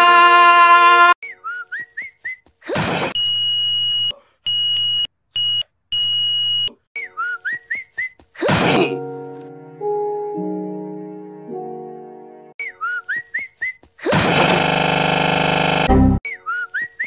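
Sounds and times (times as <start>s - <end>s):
cartoon wooden chair smashing: 8.4s - 8.9s, 14.1s - 14.8s
short whistled chirps: 12.6s - 13.8s.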